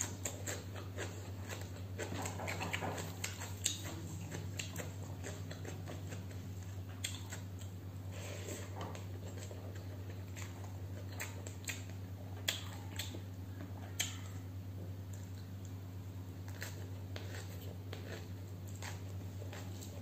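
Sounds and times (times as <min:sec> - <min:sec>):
chewing crunchy food: 0:00.0 - 0:20.0
low electrical hum: 0:00.0 - 0:20.0.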